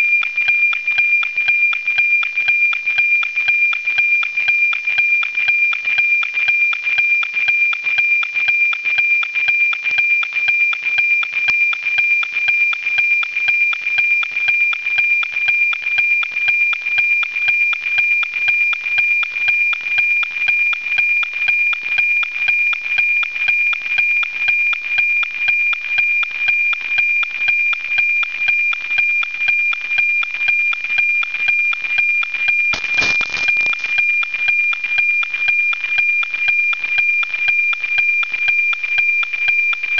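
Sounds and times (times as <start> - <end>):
pulsing high radio tone: 32.7 - 34.2
radio static rush: 32.8 - 33.9.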